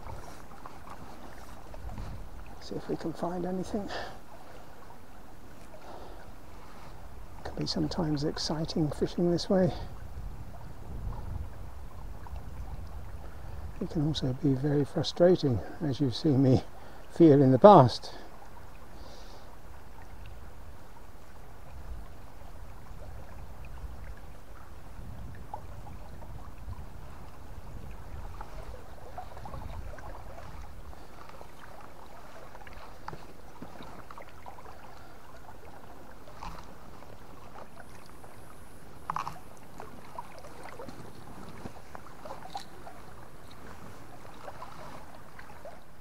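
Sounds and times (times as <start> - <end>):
river water flowing: 0.0 - 46.0
small ticks: 39.0 - 39.7.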